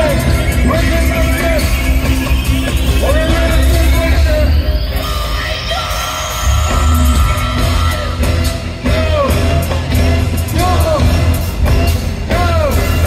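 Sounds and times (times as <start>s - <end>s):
reggae band playing: 0.0s - 13.0s
person singing: 3.0s - 11.4s.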